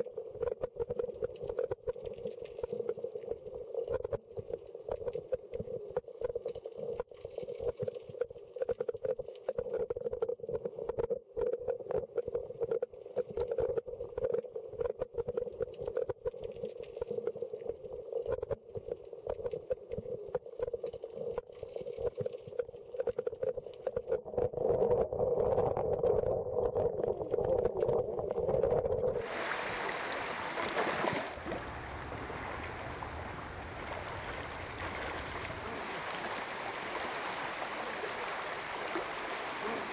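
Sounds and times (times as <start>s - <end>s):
muffled underwater stream rush: 0.0s - 39.9s
underwater crackling: 0.0s - 39.9s
stream running over rocks: 29.2s - 39.9s
steady hum: 31.4s - 35.8s.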